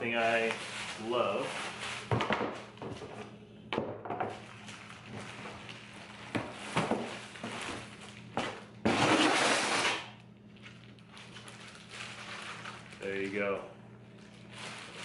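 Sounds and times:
plastic wrap crinkling: 0:04.3 - 0:08.7, 0:10.4 - 0:15.0
packing material rustling in a box: 0:04.4 - 0:08.5, 0:10.6 - 0:13.6, 0:14.2 - 0:15.0.

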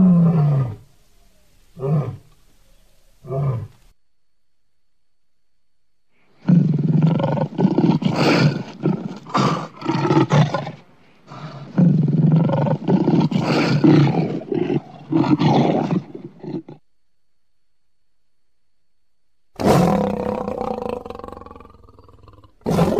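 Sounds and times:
lion roaring: 0:01.8 - 0:02.4, 0:03.2 - 0:03.8, 0:06.4 - 0:16.8, 0:19.6 - 0:22.9.

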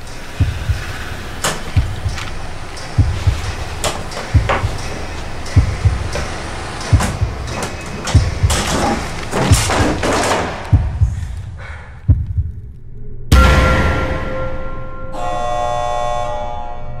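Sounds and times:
deep pulsing thumps: 0:00.0 - 0:15.1
loud hit with held tone: 0:13.3 - 0:15.8.

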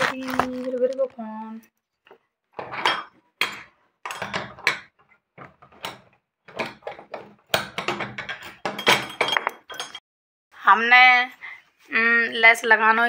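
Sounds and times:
handling rustles and knocks: 0:02.0 - 0:10.0.

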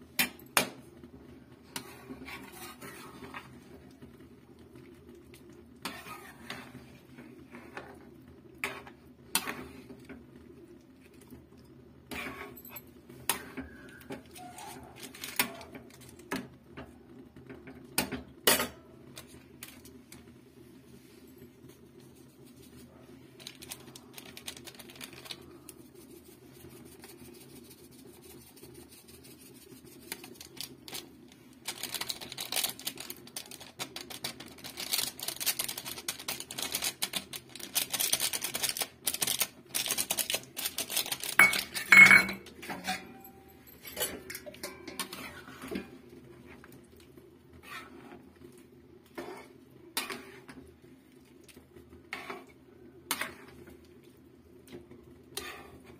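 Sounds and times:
spatula scraping metal pan: 0:01.8 - 0:03.5, 0:05.8 - 0:06.8, 0:44.6 - 0:45.9, 0:47.5 - 0:48.2, 0:49.1 - 0:50.6, 0:52.1 - 0:53.6, 0:55.3 - 0:55.9.

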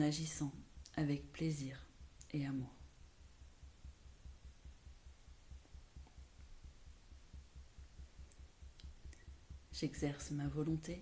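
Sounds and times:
fingertips tapping on collarbone: 0:03.3 - 0:09.8.

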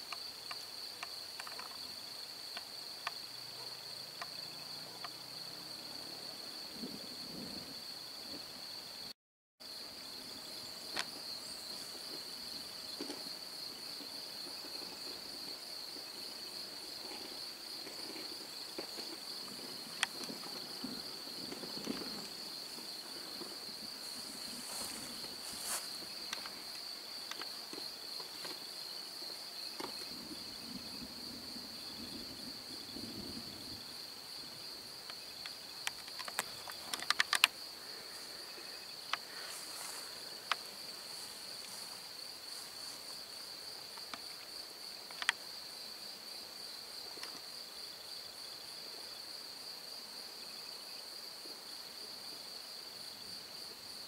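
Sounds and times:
crickets chirring: 0:00.0 - 0:54.0.

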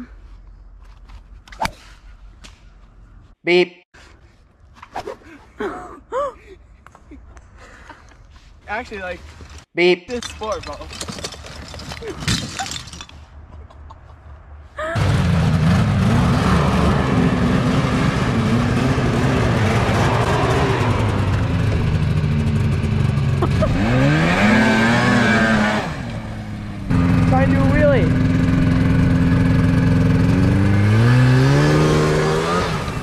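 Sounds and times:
snowmobile engine revving: 0:15.0 - 0:33.0.

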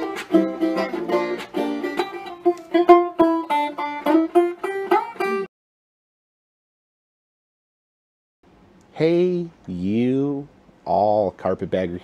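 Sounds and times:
plucked-string theme music: 0:00.0 - 0:05.5.

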